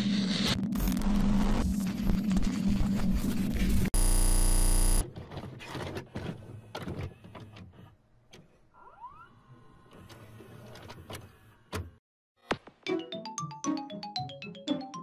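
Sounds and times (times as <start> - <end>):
motor whine: 4.0 - 5.0.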